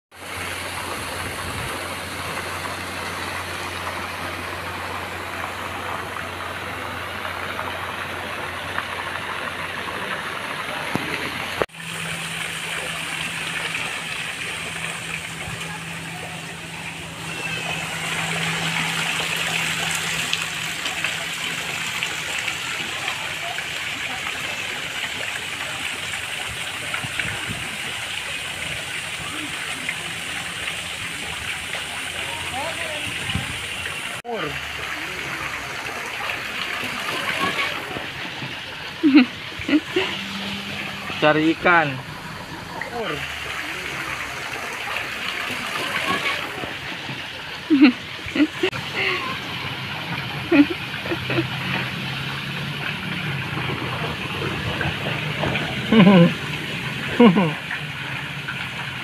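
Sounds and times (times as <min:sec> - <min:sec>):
waterfall splashing into pool: 0:00.1 - 0:59.0
low steady hum: 0:11.8 - 0:23.6.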